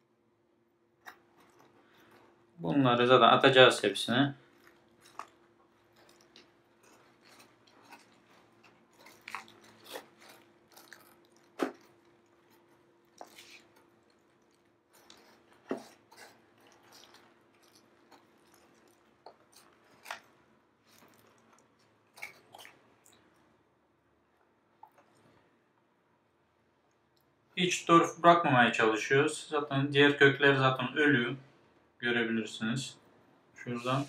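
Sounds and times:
faint steady hum: 0.0 - 34.0
peat crackling and crumbling: 0.9 - 23.7.

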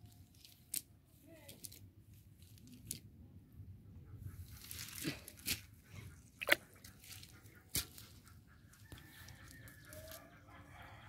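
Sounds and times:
fishing net rustling: 4.5 - 8.2
chicken clucking: 7.3 - 11.0.

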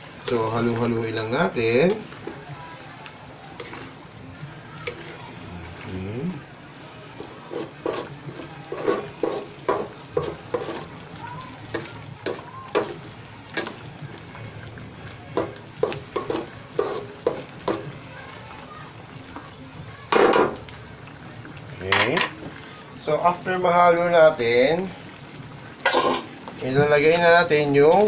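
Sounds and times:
curry sizzling: 0.0 - 28.0
spatula scraping wok: 3.4 - 11.0, 15.4 - 17.9, 25.8 - 27.0.

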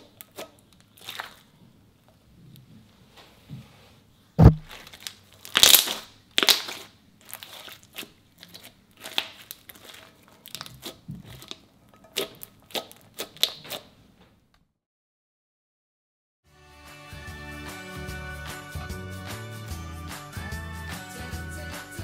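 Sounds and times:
slime squelching and popping: 0.1 - 1.6, 4.4 - 13.9.

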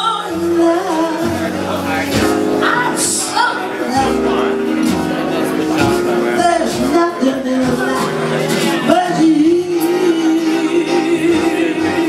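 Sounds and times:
instrumental accompaniment: 0.0 - 12.0
man singing jazz: 3.2 - 12.0.

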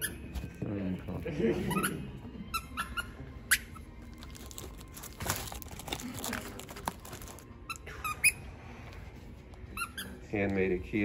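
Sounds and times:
plastic wrap crinkling: 4.1 - 7.6.

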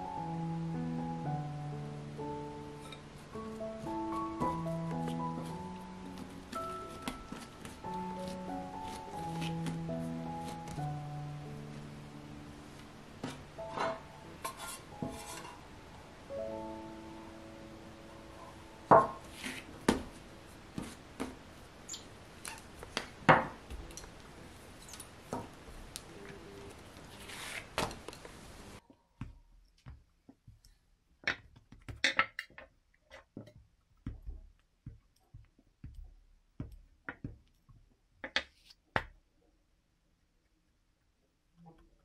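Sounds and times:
faint steady hiss: 0.0 - 31.2
dough pressed and rolled: 2.4 - 11.0, 18.9 - 28.5, 29.2 - 39.3.

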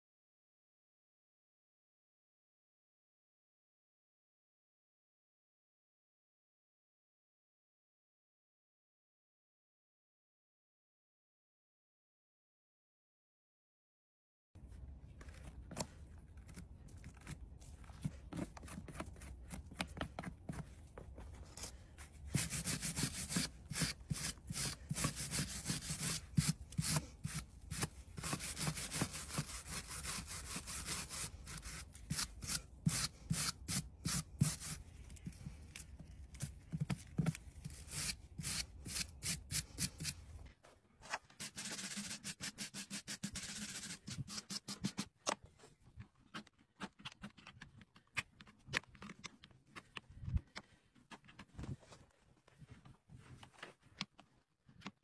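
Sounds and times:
knife scraping horse hoof: 21.5 - 34.8.

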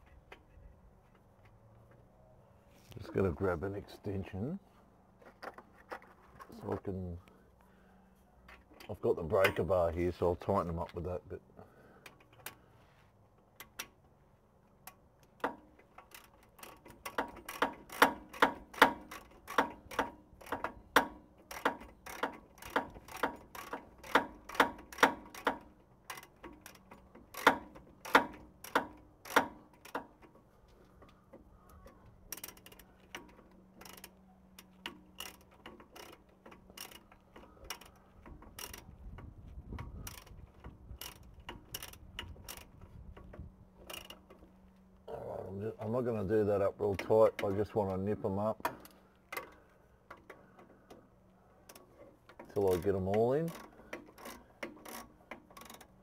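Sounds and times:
socket ratchet clicking: 32.4 - 38.9, 53.5 - 56.0.

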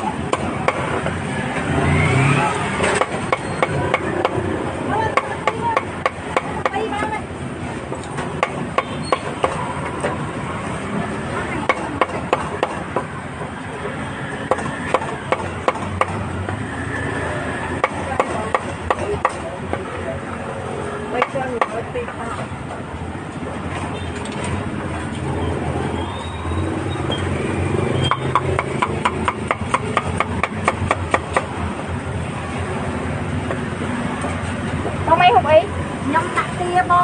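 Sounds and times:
cleaver chopping meat on wood: 28.1 - 31.6.

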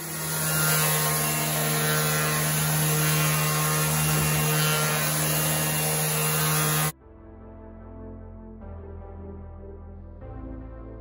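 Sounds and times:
orbital sander humming: 0.0 - 6.9.

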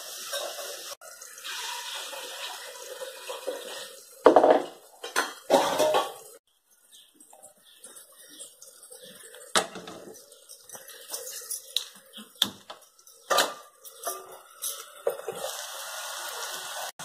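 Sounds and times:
onions sizzling in a pan: 0.0 - 6.4, 7.4 - 17.0
metal utensils clattering: 2.4 - 6.4, 7.2 - 15.5.

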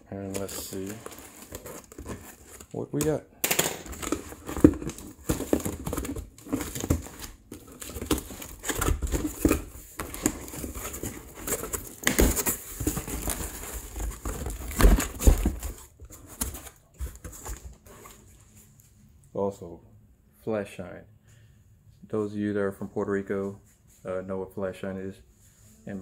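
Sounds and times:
cardboard and tape rustling: 0.0 - 3.2, 3.8 - 18.8
plastic packing crinkling: 0.0 - 3.2, 3.8 - 18.3
cardboard flaps thumping: 4.0 - 17.7.

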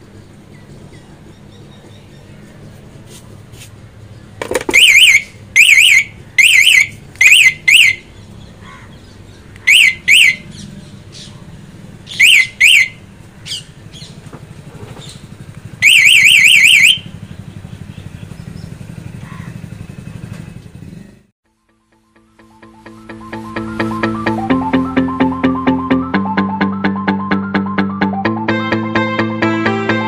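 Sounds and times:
scooter alarm chirping: 4.4 - 8.2, 9.6 - 10.8, 12.0 - 14.2, 15.0 - 20.2.

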